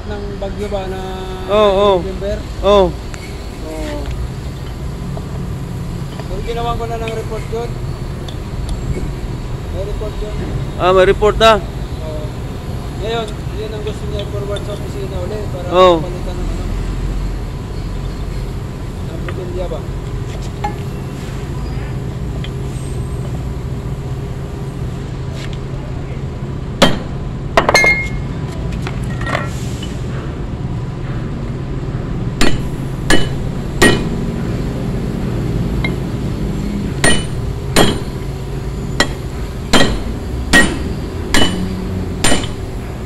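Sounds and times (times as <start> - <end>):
steady low hum: 0.0 - 43.0
hammer striking steel shackle: 26.8 - 28.3, 32.4 - 34.3, 37.0 - 38.3, 39.0 - 42.7.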